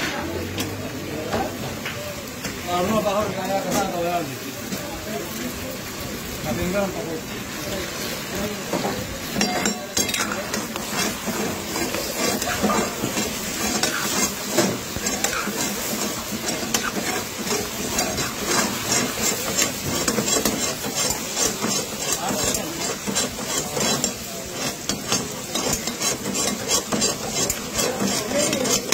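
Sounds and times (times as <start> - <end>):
food sizzling in hot oil: 0.0 - 28.9
metal spatula scraping pan: 8.0 - 28.9.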